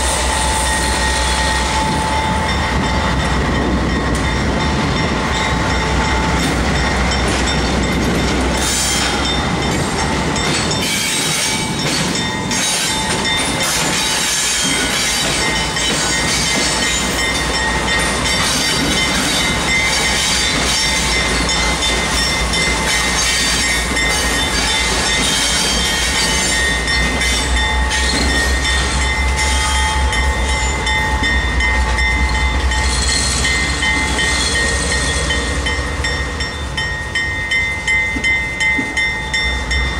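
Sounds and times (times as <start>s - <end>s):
locomotive engine rumble: 0.0s - 14.1s
rail noise: 0.0s - 39.9s.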